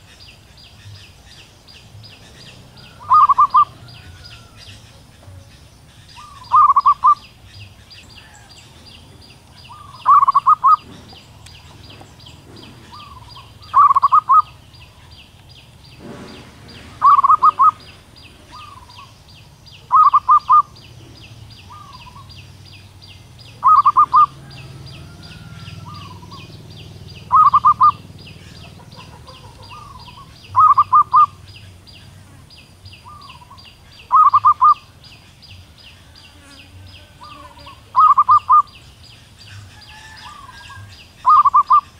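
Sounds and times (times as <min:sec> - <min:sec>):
high ticking chirp: 0:00.0 - 0:16.0, 0:17.0 - 0:41.9
dove cooing: 0:02.1 - 0:15.1, 0:16.0 - 0:19.2, 0:19.8 - 0:22.4, 0:23.4 - 0:31.9, 0:33.0 - 0:34.9, 0:36.9 - 0:38.8, 0:39.5 - 0:41.9.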